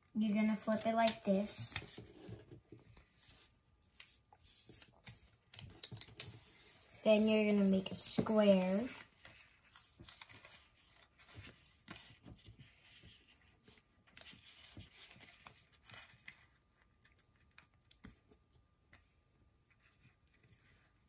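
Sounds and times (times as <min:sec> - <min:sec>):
paper being folded: 0:03.0 - 0:18.2.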